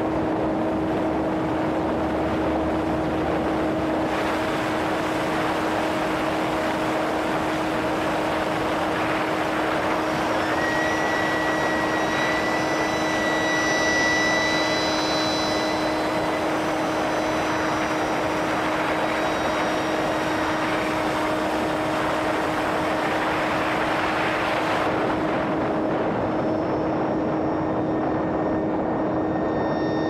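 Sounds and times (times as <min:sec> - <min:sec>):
model airplane motor whine: 0:03.6 - 0:30.0.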